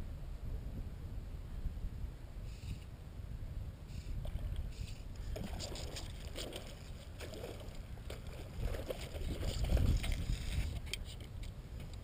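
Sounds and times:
wind rumble on microphone: 0.0s - 12.0s
shallow water splashing: 5.2s - 10.8s.

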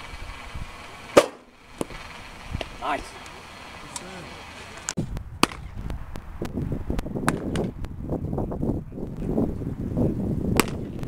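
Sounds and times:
wind noise on microphone: 0.0s - 2.8s, 4.9s - 11.0s
baseballs popping into mitts: 5.4s - 6.0s, 7.2s - 7.8s, 10.6s - 11.0s.

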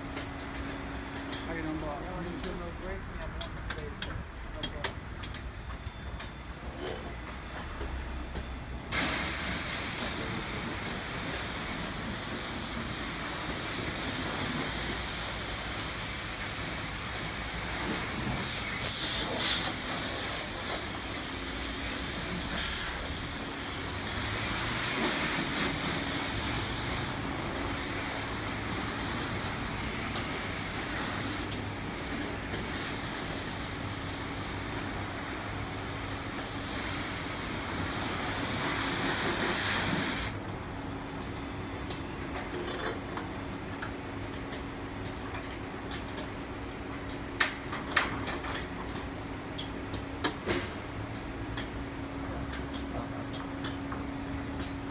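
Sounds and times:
pressure spray wand hissing: 8.9s - 34.7s, 35.4s - 40.3s.

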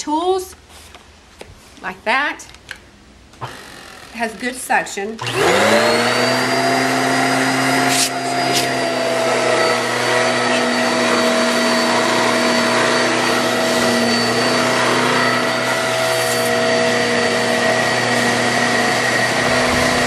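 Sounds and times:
vacuum motor whine: 3.4s - 4.5s, 5.2s - 20.0s.

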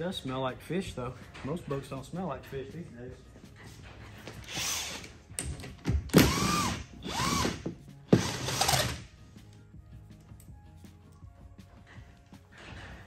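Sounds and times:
cordless power driver whirring: 6.2s - 7.6s.

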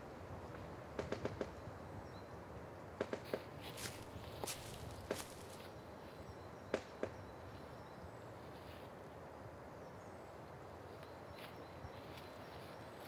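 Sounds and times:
faint forest background: 0.0s - 13.0s
dry leaves crackling: 3.6s - 5.7s.

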